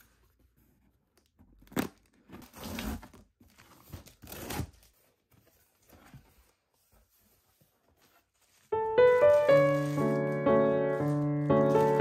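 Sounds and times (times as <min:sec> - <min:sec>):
cardboard tearing: 0:01.6 - 0:05.2, 0:08.4 - 0:12.0.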